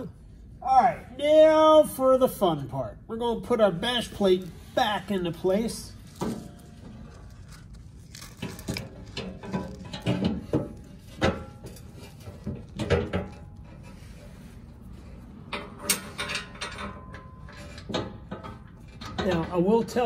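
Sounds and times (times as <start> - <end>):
metal plate knocking and clattering: 9.1 - 13.6.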